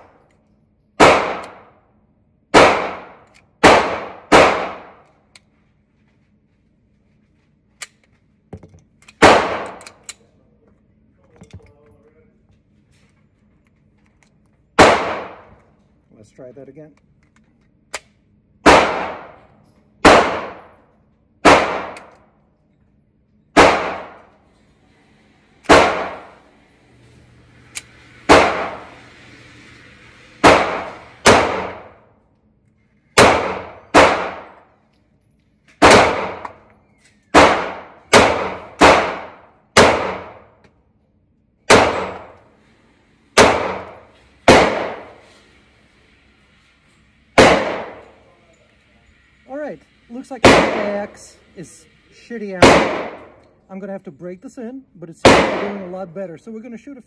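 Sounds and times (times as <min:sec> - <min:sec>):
pistol shots echoing: 0:01.0 - 0:01.8, 0:02.5 - 0:05.0, 0:09.2 - 0:10.0, 0:14.8 - 0:15.6, 0:18.6 - 0:19.4, 0:20.0 - 0:20.8, 0:21.4 - 0:22.2, 0:23.6 - 0:24.3, 0:25.6 - 0:26.4, 0:28.3 - 0:28.9, 0:30.4 - 0:32.0, 0:33.2 - 0:34.6, 0:35.8 - 0:36.7, 0:37.3 - 0:40.5, 0:41.7 - 0:42.4, 0:43.4 - 0:45.2, 0:47.4 - 0:48.2, 0:50.4 - 0:51.2, 0:52.6 - 0:53.4, 0:55.2 - 0:56.0.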